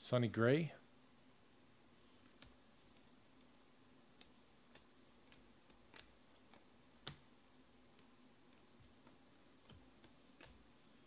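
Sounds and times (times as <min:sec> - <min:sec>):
low room hum: 0:00.0 - 0:11.0
trading cards clicking: 0:04.2 - 0:07.2.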